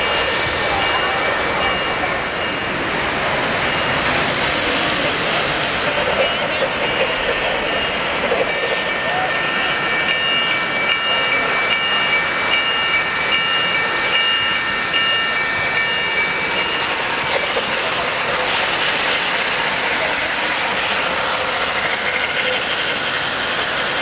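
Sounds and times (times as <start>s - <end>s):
high steady tones: 0.0s - 23.0s
model trains rolling clatter: 0.0s - 24.0s.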